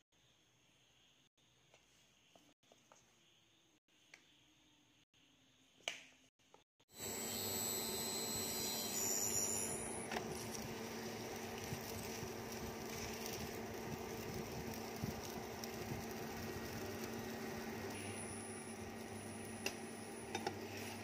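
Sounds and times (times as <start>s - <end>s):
cooktop fan hum: 6.9s - 21.0s.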